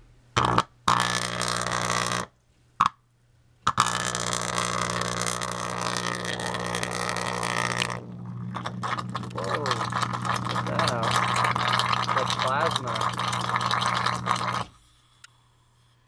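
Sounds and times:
electrical arcing buzz: 0:00.4 - 0:03.0, 0:03.6 - 0:14.8.

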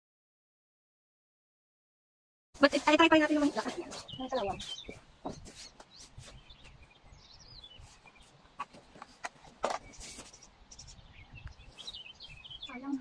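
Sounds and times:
bird chirping: 0:02.6 - 0:13.0.

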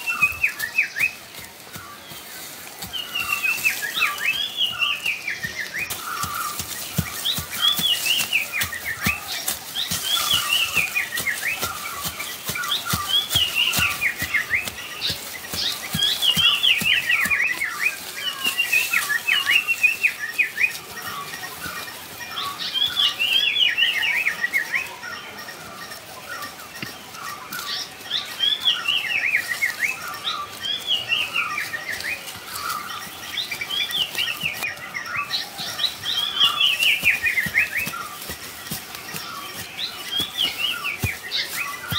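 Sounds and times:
hands digging in dry soil: 0:00.0 - 0:24.7, 0:25.8 - 0:41.9
bird singing: 0:00.0 - 0:41.9.

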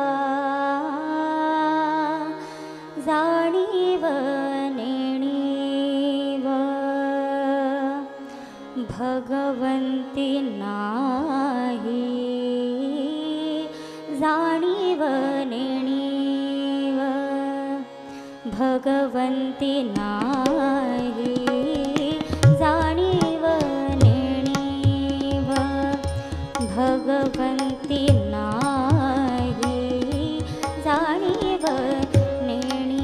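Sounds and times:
harmonium: 0:00.0 - 0:33.0
woman singing: 0:00.0 - 0:33.0
tabla strokes: 0:19.9 - 0:33.0.

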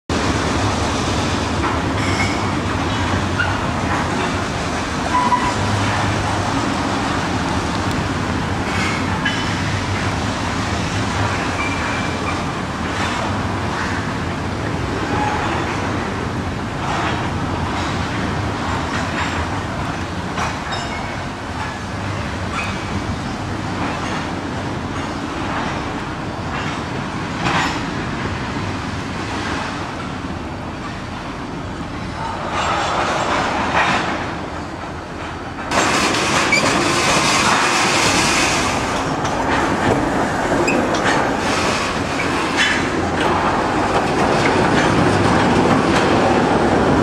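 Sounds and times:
locomotive engine hum: 0:00.1 - 0:47.0
train wheels rolling: 0:00.1 - 0:47.0
wheels clicking over rails: 0:32.5 - 0:47.0.

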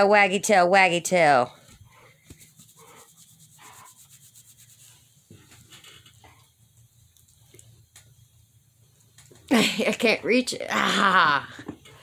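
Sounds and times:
rubbing of dog fur: 0:01.8 - 0:06.4.

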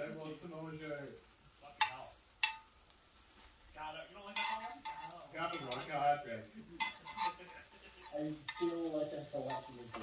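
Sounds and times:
light sizzle: 0:00.0 - 0:10.0
chopsticks clicking on iron pan: 0:01.7 - 0:03.0, 0:04.3 - 0:06.0, 0:06.8 - 0:10.0.

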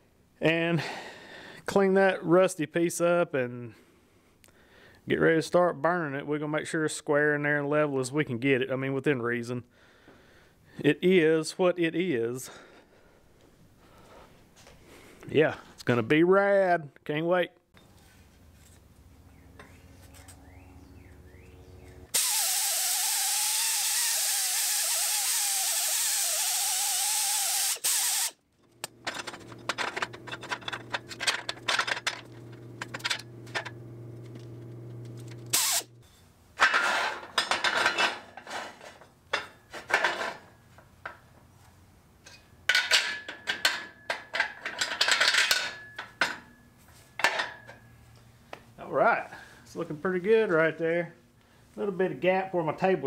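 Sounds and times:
welding arc hiss: 0:22.1 - 0:28.4, 0:35.5 - 0:35.9
metal parts clanking: 0:27.8 - 0:40.5, 0:42.3 - 0:46.5
low steady hum: 0:28.6 - 0:36.6.

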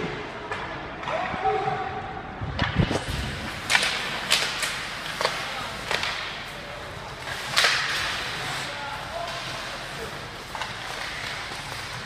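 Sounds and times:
hubbub of ice rink: 0:00.0 - 0:12.0
hockey sticks cracking on puck: 0:02.9 - 0:12.0.

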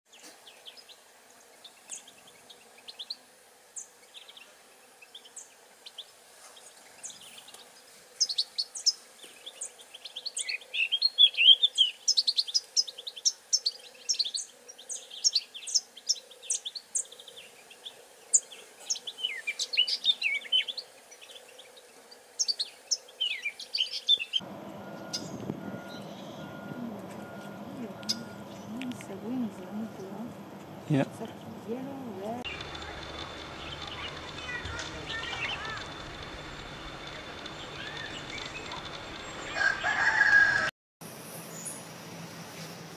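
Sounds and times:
bird twittering and trilling: 0:25.0 - 0:29.0, 0:32.4 - 0:40.2.

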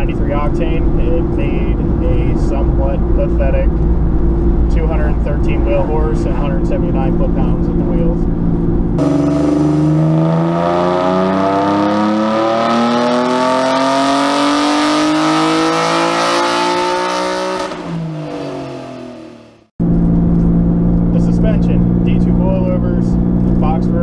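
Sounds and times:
car engine revving on dyno: 0:09.0 - 0:19.7.

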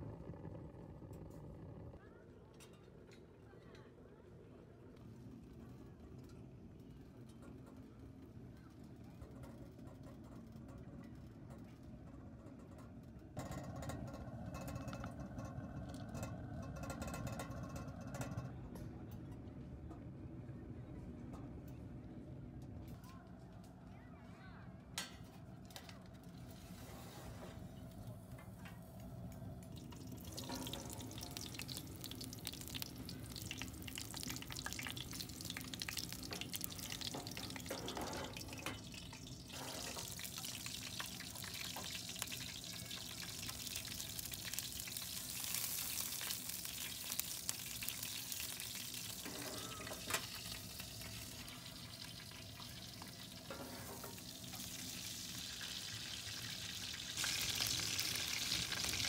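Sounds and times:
meat sizzling and spitting: 0:30.1 - 0:59.0.

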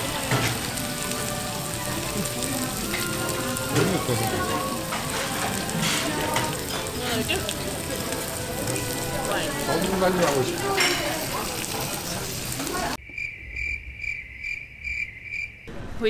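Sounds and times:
background music: 0:00.0 - 0:10.8
faint voices: 0:00.0 - 0:13.0
food sizzling: 0:00.0 - 0:13.0.

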